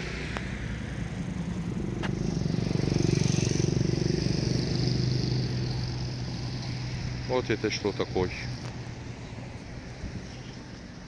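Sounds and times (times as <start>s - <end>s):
small motor engine passing: 0.0s - 8.6s.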